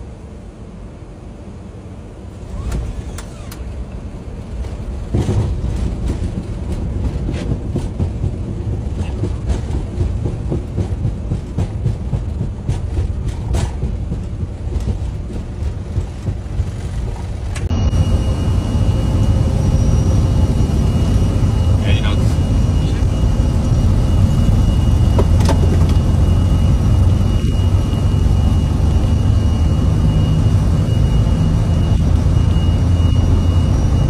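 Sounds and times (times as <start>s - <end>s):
jet engines rumbling: 0.0s - 34.0s
high whine: 12.6s - 34.0s.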